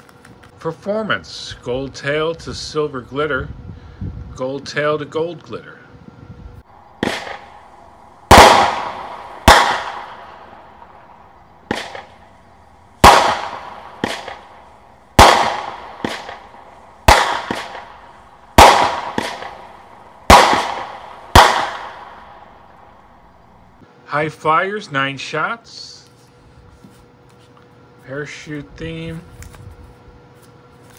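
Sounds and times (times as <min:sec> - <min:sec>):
fireworks bangs: 0:07.0 - 0:12.3, 0:13.0 - 0:22.8.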